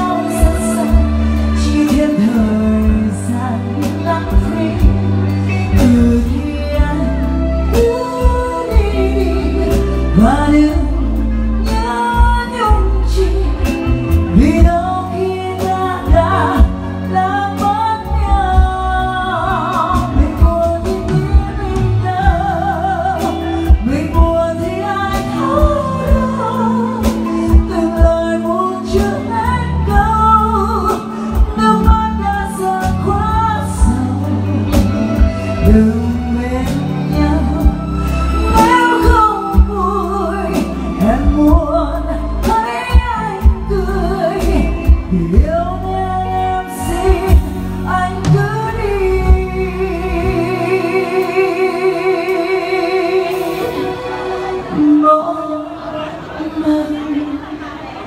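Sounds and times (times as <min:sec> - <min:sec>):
band with keyboard and electric guitar: 0:00.0 - 0:58.0
woman singing into a microphone: 0:00.0 - 0:58.0.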